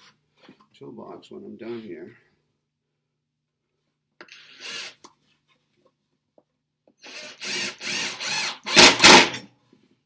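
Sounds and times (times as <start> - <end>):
cordless drill driving screw: 4.3 - 5.0, 7.0 - 9.4.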